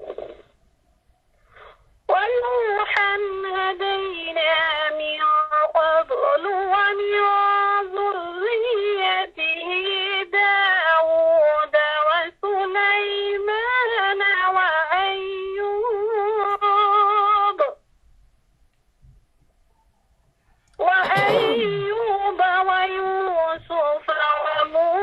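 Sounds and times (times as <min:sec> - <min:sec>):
woman chanting melodically: 0:20.8 - 0:25.0.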